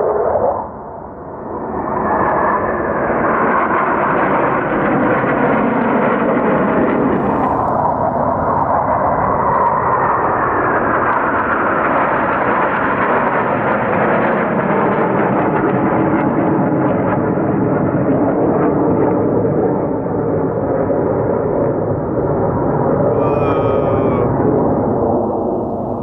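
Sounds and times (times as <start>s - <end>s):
jet engines rushing: 0.0s - 13.4s, 19.2s - 26.0s.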